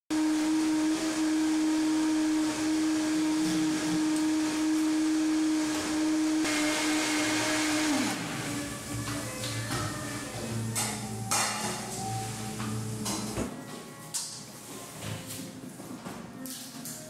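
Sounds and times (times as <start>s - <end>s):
electric motor humming: 0.1s - 13.4s.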